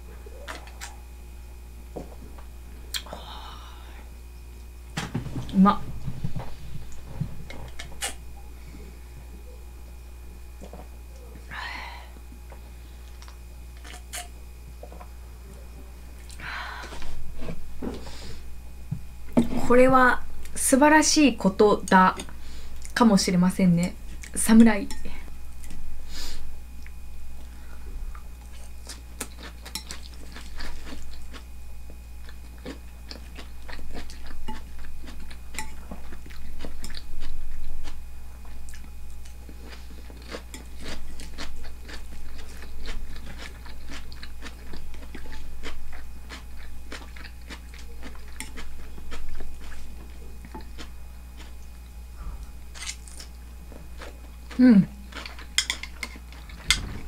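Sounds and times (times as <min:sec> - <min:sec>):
steady low hum: 0:00.0 - 0:57.0
person chewing crunchy food: 0:25.5 - 0:57.0.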